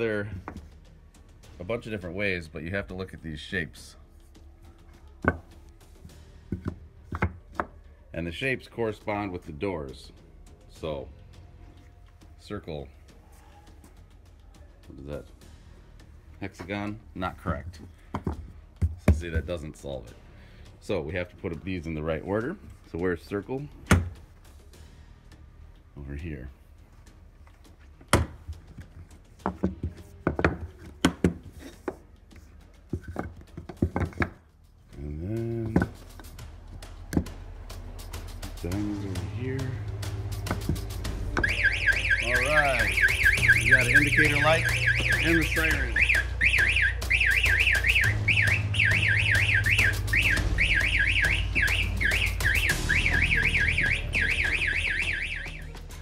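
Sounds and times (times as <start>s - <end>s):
electronic siren wailing: 41.4s - 55.8s.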